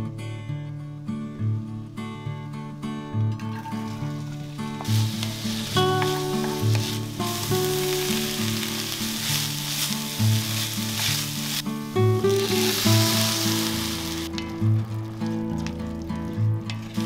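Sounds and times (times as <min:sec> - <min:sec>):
soft background music: 0:00.0 - 0:17.0
wine pouring: 0:03.4 - 0:17.0
onion and rice sizzling in a pot: 0:03.5 - 0:17.0
wooden spoon stirring: 0:04.8 - 0:14.3.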